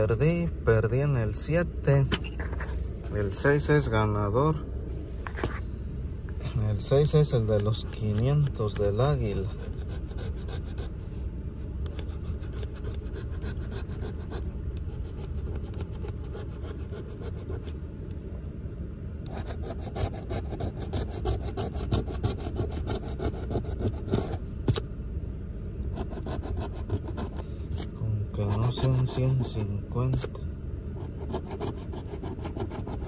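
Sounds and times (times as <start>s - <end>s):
coin scratching a ticket: 7.6s - 10.9s, 11.9s - 17.7s, 19.3s - 24.4s, 26.0s - 29.6s, 31.0s - 33.0s.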